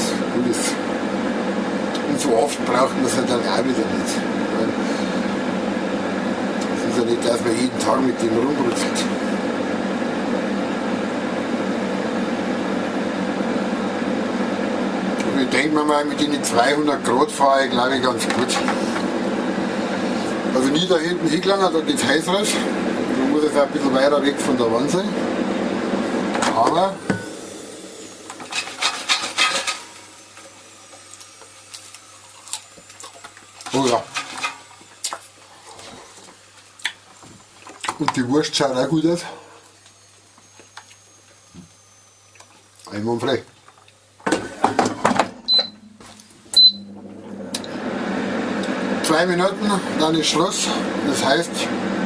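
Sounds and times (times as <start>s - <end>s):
air fryer fan humming: 0.0s - 52.0s
food scraping in air fryer basket: 28.3s - 30.1s.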